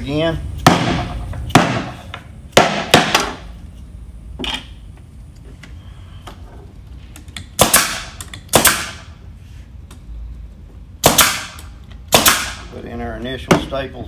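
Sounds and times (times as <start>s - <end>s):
air stapler firing: 7.3s - 9.1s, 11.0s - 12.7s.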